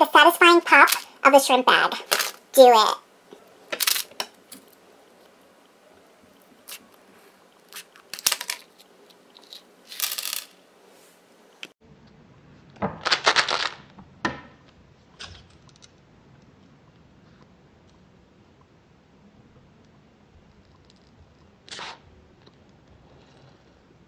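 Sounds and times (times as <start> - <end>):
plastic pieces clattering on table: 3.7 - 4.7, 7.8 - 10.6.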